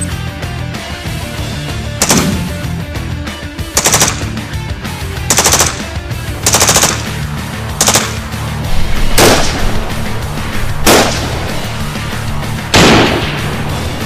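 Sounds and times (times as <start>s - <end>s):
background music: 0.0s - 14.0s
automatic rifle bursts: 3.8s - 4.2s.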